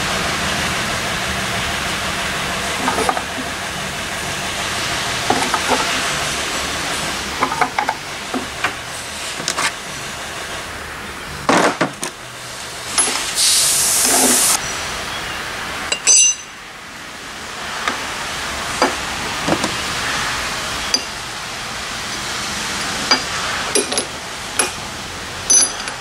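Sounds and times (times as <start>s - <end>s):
metal parts clinking on workbench: 12.9s - 13.3s, 15.9s - 16.5s, 23.1s - 24.8s, 25.5s - 26.0s
brief hiss: 13.4s - 14.6s
sharp ringing metal clank: 15.9s - 16.6s, 25.5s - 26.0s.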